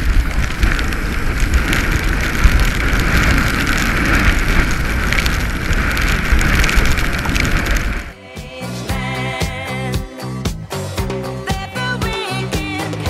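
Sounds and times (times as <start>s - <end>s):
rain falling: 0.0s - 8.2s
wind buffeting microphone: 0.0s - 8.2s.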